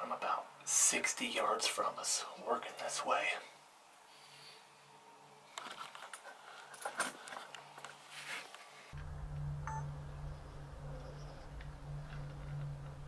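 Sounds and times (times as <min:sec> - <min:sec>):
clicks and rustles of handling: 0:05.5 - 0:08.7
steady low hum: 0:08.9 - 0:13.0
short beep: 0:09.7 - 0:09.9.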